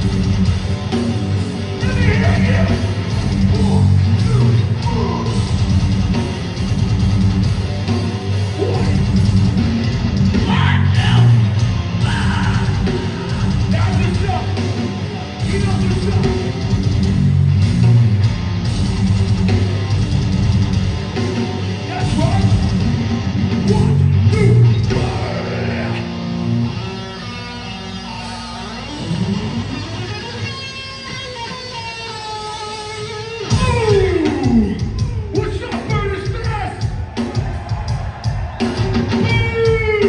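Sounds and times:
bass guitar: 0.0s - 40.0s
distorted electric guitars: 0.0s - 40.0s
drums: 0.0s - 40.0s
shouted vocals: 1.8s - 5.5s, 10.3s - 14.6s, 23.6s - 26.2s.

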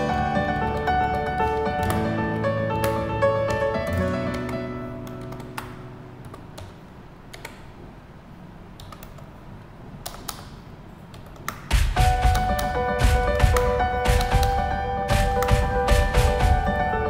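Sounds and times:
background music: 0.0s - 6.6s, 11.7s - 17.0s
computer keyboard keystrokes: 2.8s - 7.7s, 8.8s - 9.3s, 10.0s - 16.5s.

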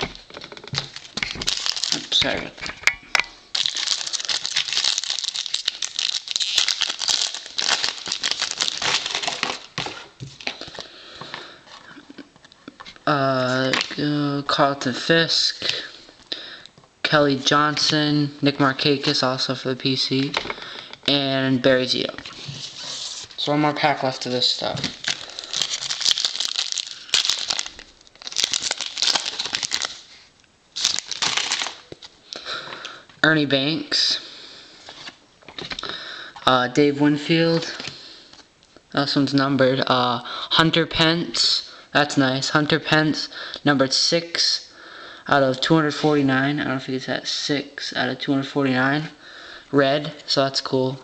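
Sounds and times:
plastic wrapper crinkling: 0.0s - 2.6s, 3.5s - 11.3s, 13.4s - 14.1s, 22.0s - 32.2s.

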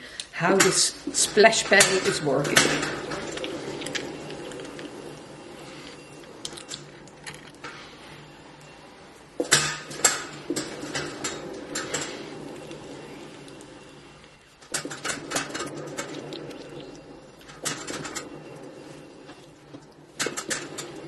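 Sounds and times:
pottery wheel hum: 0.0s - 21.0s.

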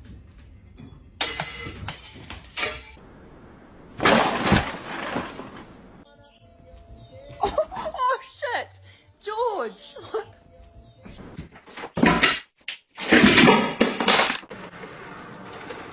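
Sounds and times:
crashing and clattering: 4.0s - 5.8s, 11.5s - 15.9s.

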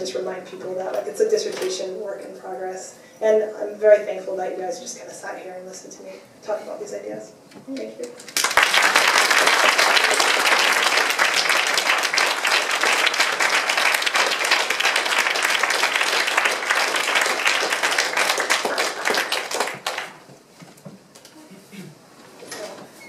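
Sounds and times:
audience applauding: 8.3s - 20.2s.

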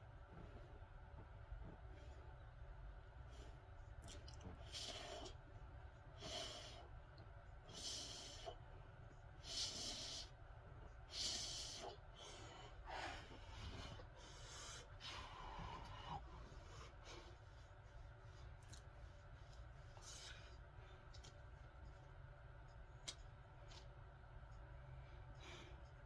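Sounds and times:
man breathing deeply: 11.1s - 17.6s.

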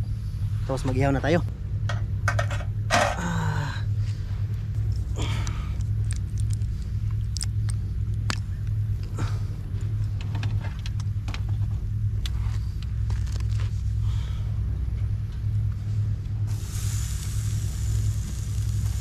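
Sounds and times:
low steady rumble: 0.0s - 19.0s
sharp crackles and clicks: 5.8s - 8.8s, 12.2s - 13.7s, 16.5s - 19.0s.

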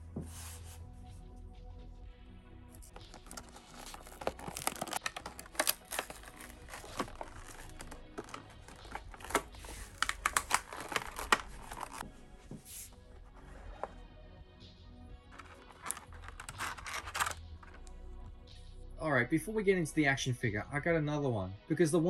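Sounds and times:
soft background music: 0.0s - 22.0s
plastic packaging crackling: 2.8s - 12.0s, 15.4s - 17.8s.

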